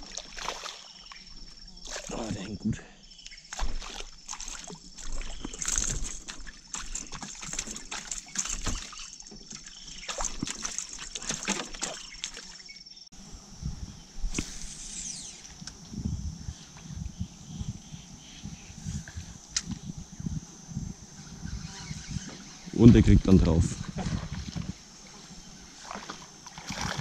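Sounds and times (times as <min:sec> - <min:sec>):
water splashing against boat: 0:03.5 - 0:12.8, 0:22.3 - 0:27.0
high-pitched hum: 0:13.2 - 0:27.0.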